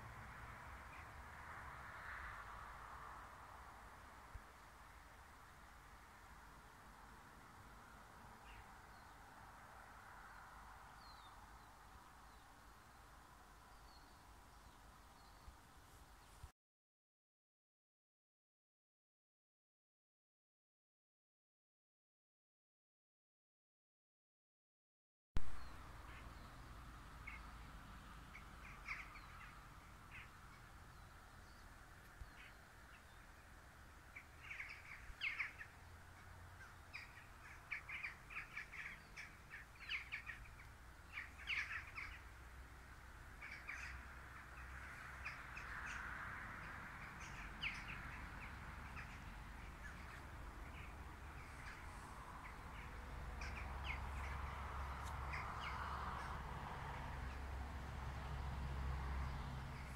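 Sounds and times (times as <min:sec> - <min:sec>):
birds calling: 0:25.4 - 0:56.4.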